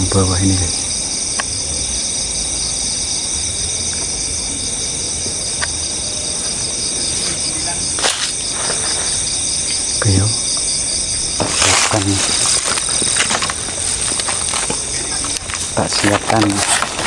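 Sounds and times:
insects trilling: 0:00.0 - 0:17.0.

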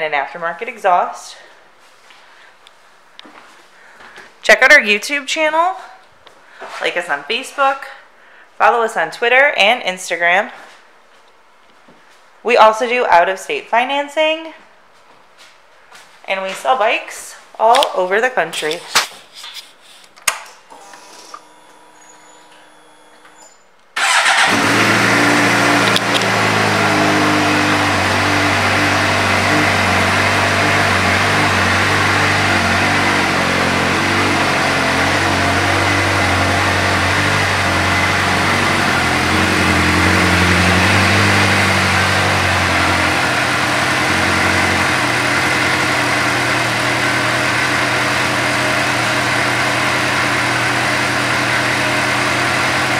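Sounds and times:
motorcycle engine idling: 0:24.0 - 0:52.9.

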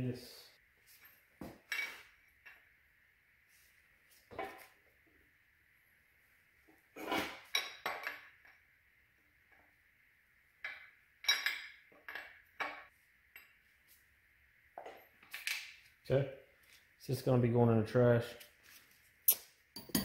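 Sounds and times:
metal wrench clinking: 0:19.3 - 0:20.0.

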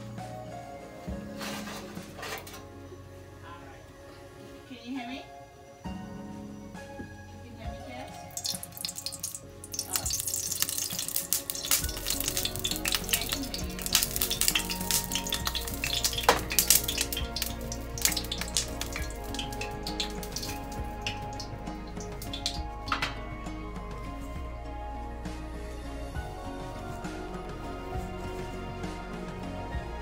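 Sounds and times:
background music: 0:00.0 - 0:30.0
frying pan sizzling and crackling: 0:08.2 - 0:23.3.

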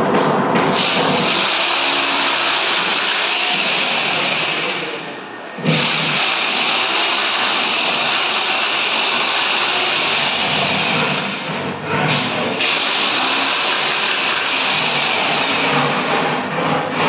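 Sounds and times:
electric drill running: 0:00.8 - 0:04.9, 0:05.7 - 0:11.4, 0:12.6 - 0:15.8.

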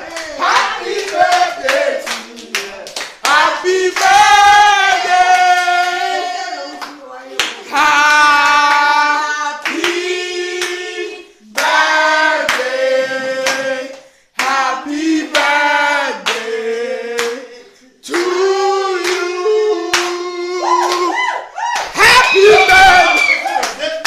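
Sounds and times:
people singing together: 0:00.0 - 0:21.2
handclaps: 0:00.1 - 0:04.2, 0:12.5 - 0:12.7, 0:13.4 - 0:14.6, 0:19.9 - 0:24.0.

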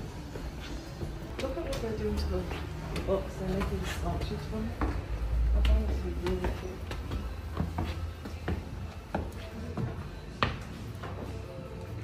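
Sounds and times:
faint music: 0:00.0 - 0:12.0.

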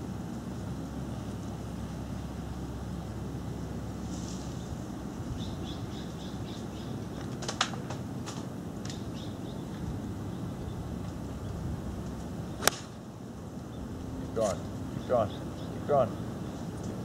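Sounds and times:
outdoor background rumble: 0:00.0 - 0:17.0
bird chirping: 0:04.6 - 0:07.2, 0:08.9 - 0:10.8, 0:14.9 - 0:16.7.

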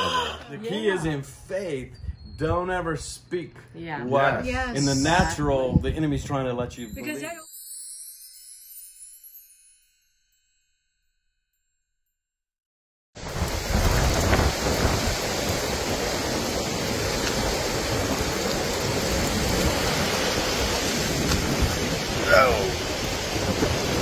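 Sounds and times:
forest fire rushing wind and flames: 0:04.5 - 0:06.3, 0:13.2 - 0:24.0.

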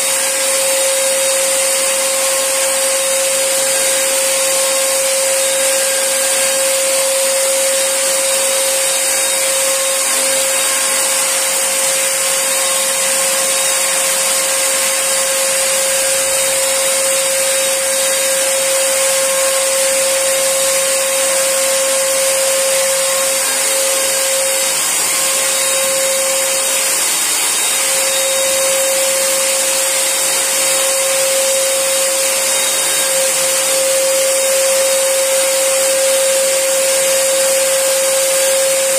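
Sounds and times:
paint sprayer motor whine: 0:00.0 - 0:38.9.

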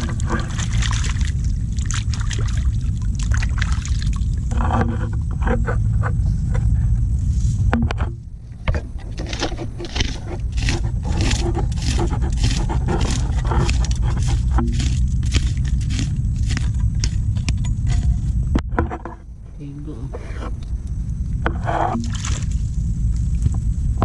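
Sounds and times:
low rumble: 0:00.0 - 0:24.0
metal blade digging wet mud: 0:09.1 - 0:18.2.

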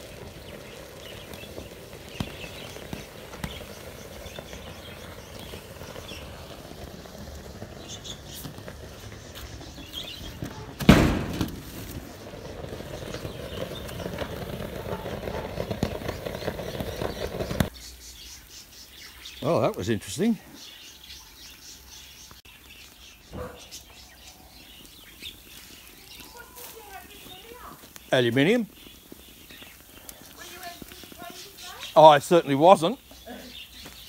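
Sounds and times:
furnace fire rushing: 0:00.0 - 0:17.7, 0:23.3 - 0:33.0
loud thump: 0:10.8 - 0:11.8.

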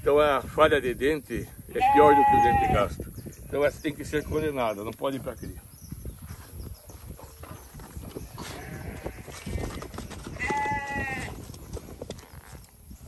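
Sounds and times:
sheep bleating: 0:01.8 - 0:02.9, 0:08.4 - 0:09.6, 0:10.4 - 0:11.3
low scuffling and rustling: 0:04.4 - 0:13.0.

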